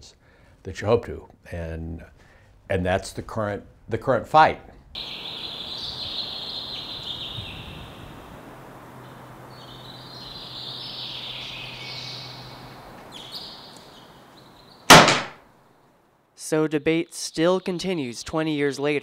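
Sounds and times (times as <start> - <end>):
low hiss: 0.1 - 18.6
birds chirping: 5.0 - 15.2.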